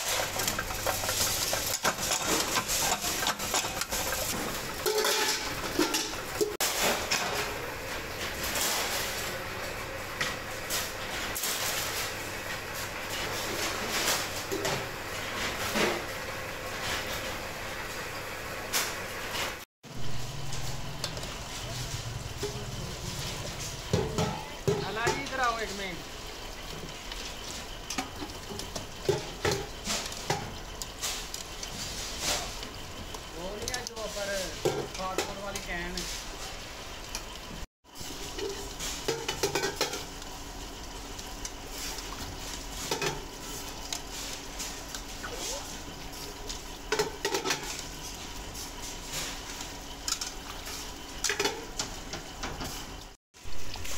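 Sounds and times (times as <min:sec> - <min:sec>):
steel clanking and clattering: 0:00.0 - 0:07.6
steady workshop noise: 0:00.0 - 0:53.9.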